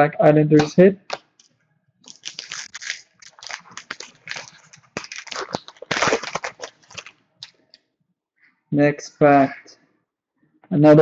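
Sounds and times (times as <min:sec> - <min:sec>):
foil wrapper crinkling and tearing: 0:02.1 - 0:07.6.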